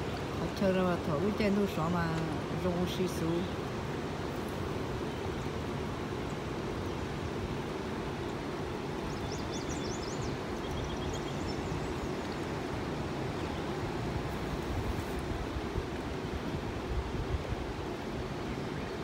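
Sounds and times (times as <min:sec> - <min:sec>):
river rushing over rocks: 0:00.0 - 0:19.0
bird chirping: 0:09.0 - 0:12.2.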